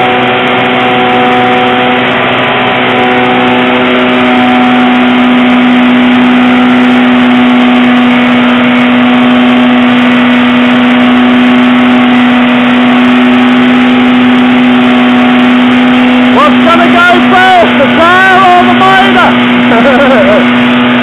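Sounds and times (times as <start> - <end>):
car engine at high revs: 0.0 - 21.0.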